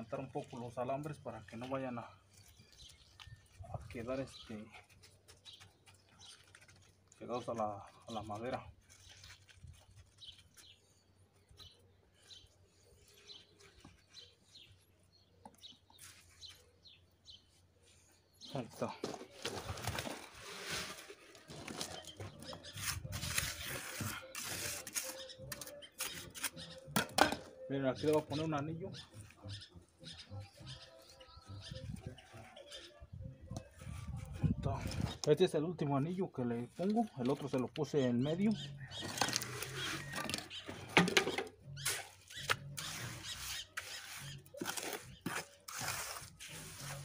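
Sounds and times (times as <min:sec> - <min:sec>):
gritty cement scraping: 0:00.0 - 0:17.4, 0:18.3 - 0:47.0
trowel scraping wet cement: 0:20.2 - 0:26.9, 0:41.7 - 0:47.0
wet cement pouring: 0:22.8 - 0:26.2, 0:41.8 - 0:47.0.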